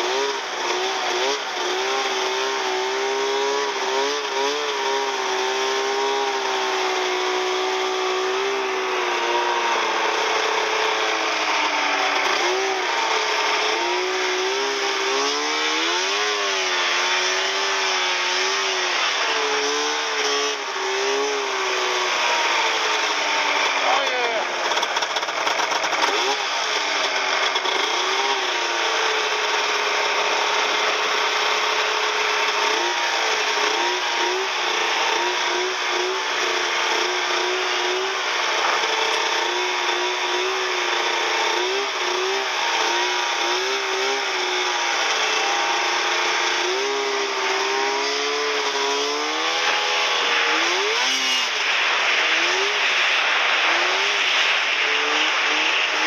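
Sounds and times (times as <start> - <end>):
snowmobile engine revving: 0.0 - 56.0
steady rushing noise: 50.2 - 56.0.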